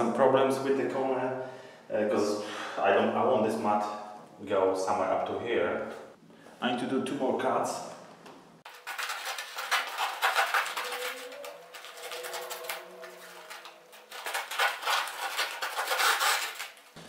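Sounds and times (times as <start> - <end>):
foil crinkling: 8.7 - 17.0
scissors cutting foil: 8.7 - 17.0.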